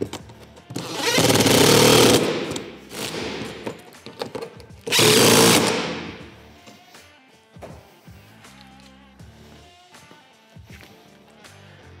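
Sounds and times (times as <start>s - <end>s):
impact driver hammering: 0.8s - 6.4s.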